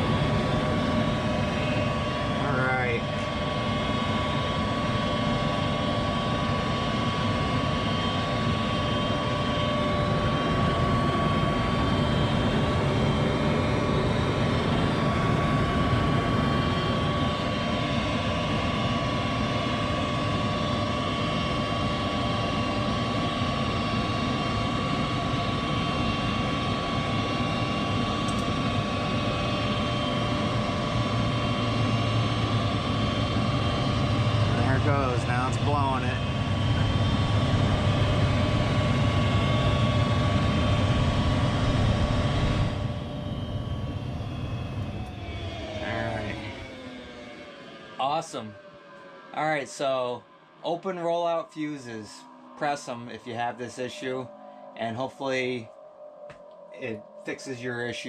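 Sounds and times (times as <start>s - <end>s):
deep hum: 0.0s - 5.2s, 26.4s - 48.7s
furnace fan motor whine: 0.0s - 58.0s.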